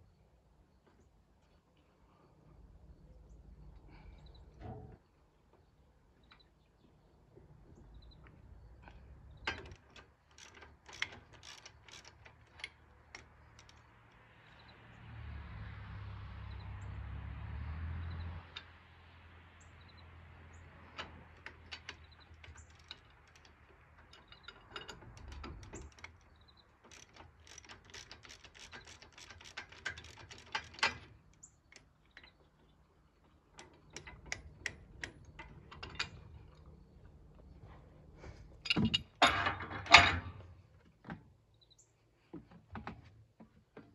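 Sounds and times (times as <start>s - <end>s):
metal tools clinking: 20.9s - 26.2s, 38.5s - 40.5s.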